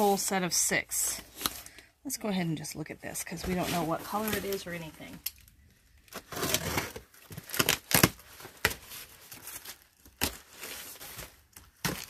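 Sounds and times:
bubble wrap crinkling: 3.5s - 12.0s
packing tape tearing: 6.1s - 12.0s.

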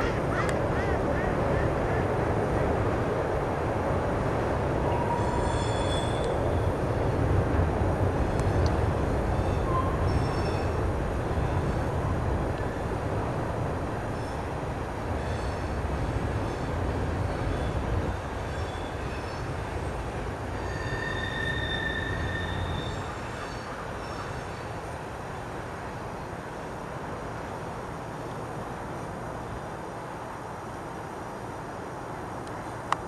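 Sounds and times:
train rumbling past: 0.0s - 32.4s
train wheel squeal: 4.9s - 6.8s, 9.3s - 10.8s, 15.2s - 15.8s, 17.4s - 19.8s, 20.5s - 24.8s.

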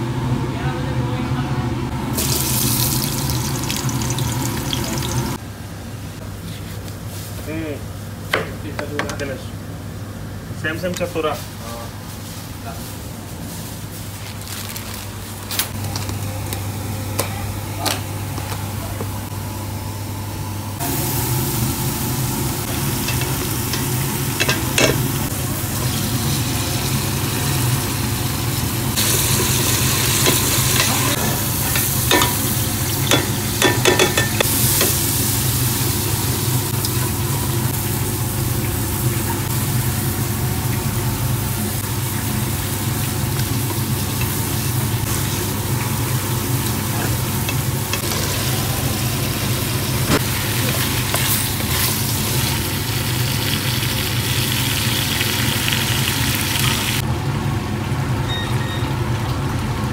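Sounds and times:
food sizzling in oil: 2.2s - 5.4s, 20.8s - 57.0s.

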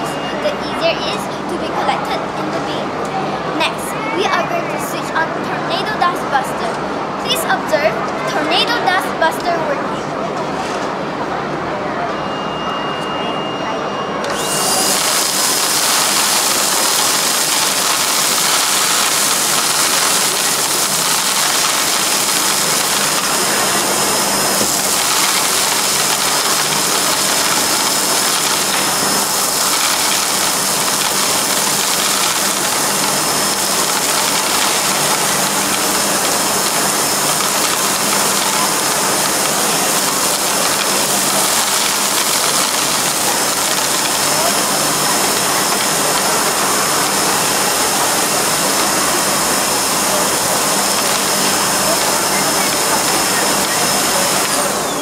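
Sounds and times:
vacuum cleaner running: 0.0s - 1.7s, 14.2s - 55.0s.

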